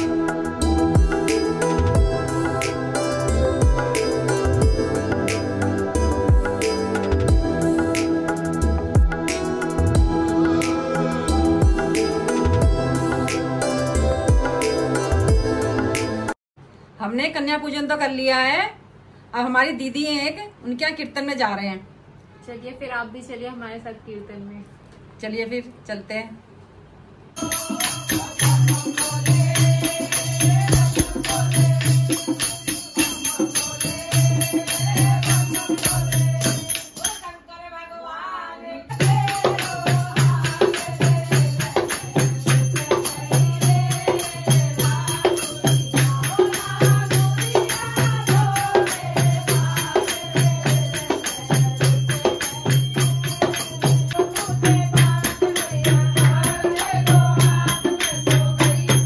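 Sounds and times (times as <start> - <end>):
steady low beat: 0.0 - 16.0
jingling hand percussion: 0.0 - 16.4, 27.4 - 37.5, 38.9 - 59.0
women singing devotional song: 27.4 - 59.0.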